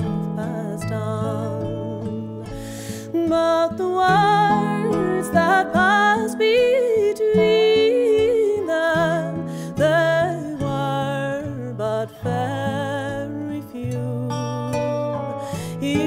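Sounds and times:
acoustic guitar chords: 0.0s - 16.0s
lap steel guitar sliding melody: 0.0s - 16.0s.

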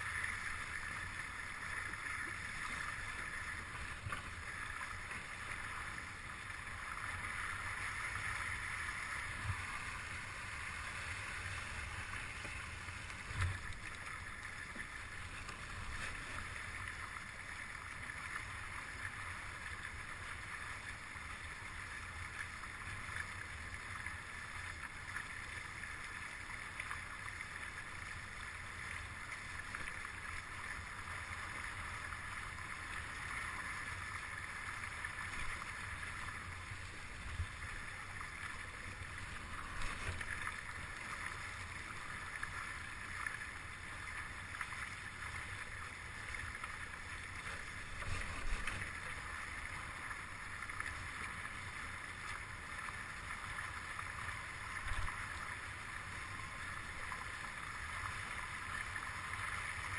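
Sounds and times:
water rushing along boat hulls: 0.0s - 25.0s.

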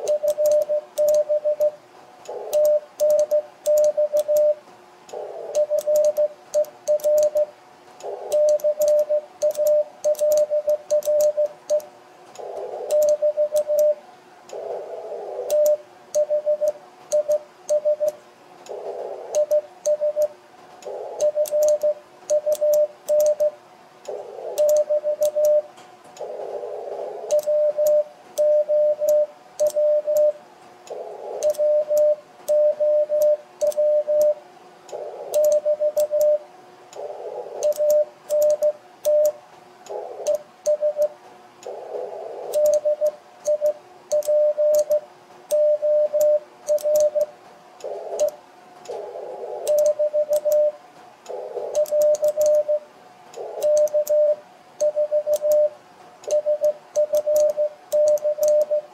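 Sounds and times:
morse code tone: 0.0s - 1.8s, 2.4s - 4.6s, 5.6s - 7.5s, 8.3s - 11.9s, 12.9s - 14.0s, 15.5s - 18.2s, 19.4s - 20.3s, 21.2s - 23.6s, 24.6s - 25.7s, 27.3s - 30.4s, 31.4s - 34.4s, 35.4s - 36.4s, 37.6s - 39.4s, 40.3s - 41.1s, 42.5s - 47.3s, 49.7s - 50.8s, 51.8s - 52.9s, 53.6s - 58.9s
morse key clicks: 21.2s - 25.6s, 35.3s - 36.3s, 37.6s - 39.4s, 42.5s - 45.6s, 46.2s - 49.0s, 49.7s - 50.7s, 51.3s - 52.6s.

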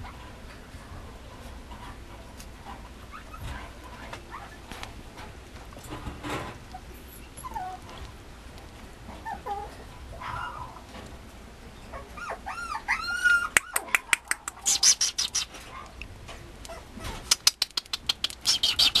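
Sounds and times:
puppy whimpering: 6.7s - 7.9s, 9.2s - 10.8s, 11.8s - 15.9s.

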